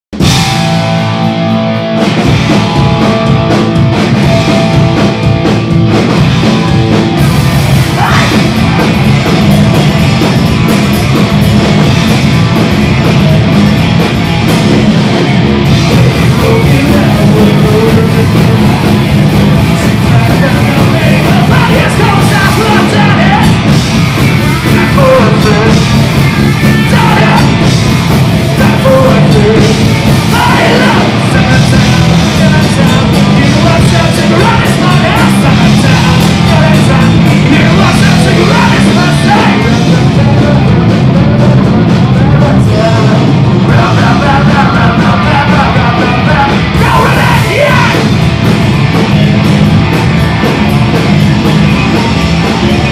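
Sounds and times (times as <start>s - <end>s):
bass guitar: 0.0s - 52.9s
drum kit: 0.1s - 52.9s
electric guitars: 0.2s - 52.9s
person singing into a microphone: 7.9s - 8.7s, 15.8s - 18.8s, 19.7s - 23.7s, 24.6s - 25.9s, 26.5s - 27.8s, 28.6s - 48.1s.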